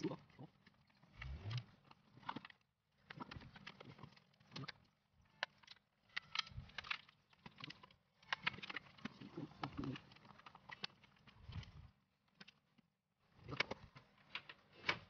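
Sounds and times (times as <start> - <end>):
plastic clips clicking and rattling: 2.2 - 11.7.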